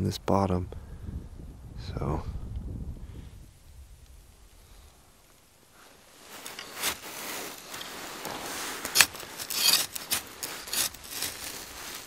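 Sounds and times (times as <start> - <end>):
rubbing and scraping: 5.8 - 12.0.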